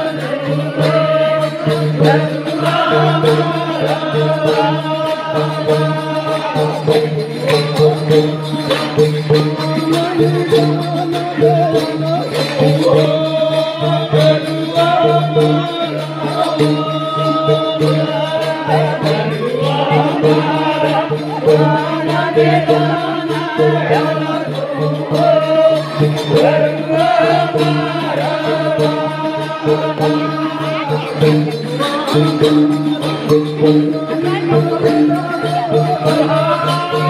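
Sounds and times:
jingling percussion beat: 0:00.0 - 0:37.0
man singing: 0:00.0 - 0:37.0
hand clapping: 0:06.4 - 0:13.2.

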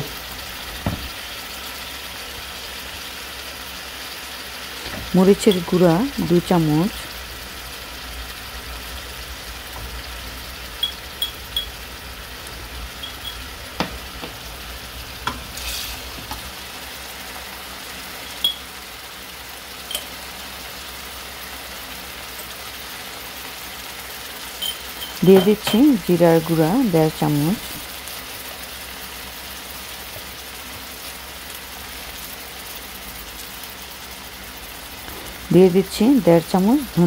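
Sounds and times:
onions sizzling in hot oil: 0:00.0 - 0:37.0
utensils tapping on pot: 0:04.8 - 0:05.8, 0:10.8 - 0:11.8, 0:13.0 - 0:14.4, 0:15.2 - 0:16.4, 0:18.2 - 0:18.6, 0:19.9 - 0:20.2, 0:24.6 - 0:26.2.

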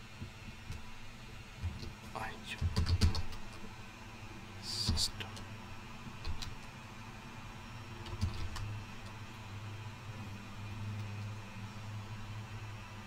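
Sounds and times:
low steady hum: 0:00.0 - 0:13.0
keyboard keystrokes: 0:02.6 - 0:03.4, 0:08.0 - 0:09.2.

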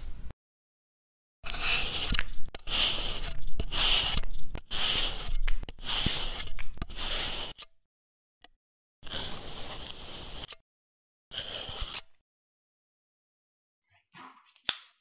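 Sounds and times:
metal cutter scraping sand: 0:01.4 - 0:07.7, 0:09.0 - 0:10.6, 0:11.3 - 0:12.2.

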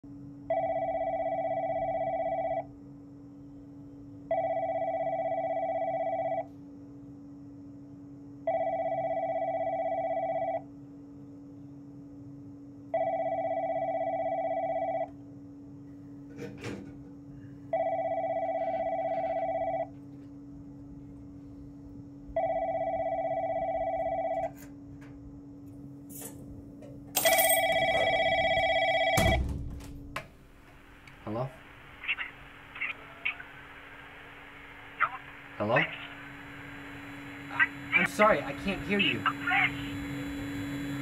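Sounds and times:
steady low hum: 0:00.0 - 0:41.0
electronic telephone ringing: 0:00.5 - 0:02.7, 0:04.3 - 0:06.5, 0:08.4 - 0:10.7, 0:12.9 - 0:15.1, 0:17.7 - 0:19.9, 0:22.4 - 0:24.6, 0:27.2 - 0:29.4.

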